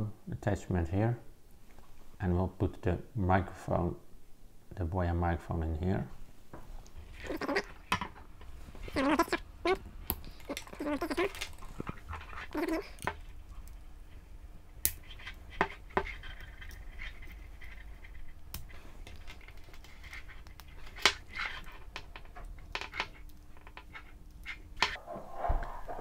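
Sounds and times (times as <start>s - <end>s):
faint steady hum: 0.0s - 26.0s
light scraping and rubbing: 23.8s - 26.0s.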